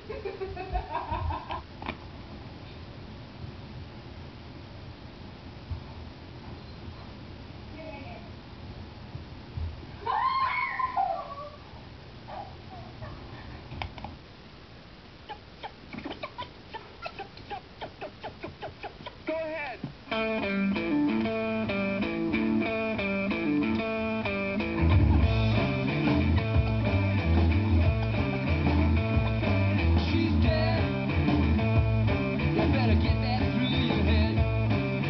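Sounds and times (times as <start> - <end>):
bass and drums: 19.9 - 35.0
guitar rock music: 20.1 - 35.0.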